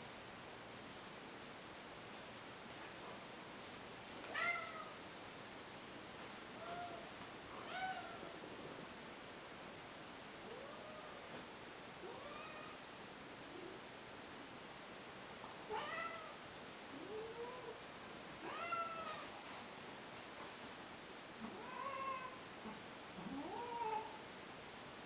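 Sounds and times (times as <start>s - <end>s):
cat meowing: 12.1s - 12.8s, 15.7s - 16.4s, 18.4s - 19.2s.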